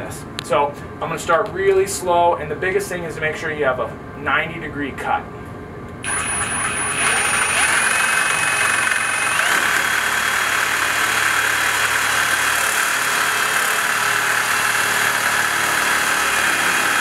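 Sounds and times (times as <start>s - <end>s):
reciprocating saw cutting pipe: 6.0s - 17.0s.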